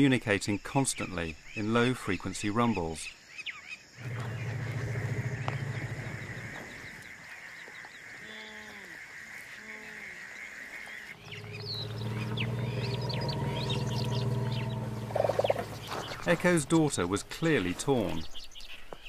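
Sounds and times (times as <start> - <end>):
birds chirping faintly: 0.0 - 19.0
elephants rumbling: 4.0 - 18.3.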